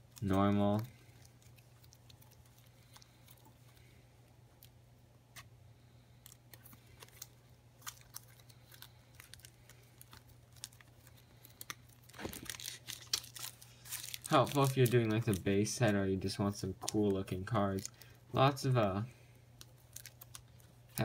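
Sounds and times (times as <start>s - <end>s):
low steady hum: 0.0s - 21.0s
cards being flipped through: 12.1s - 15.5s.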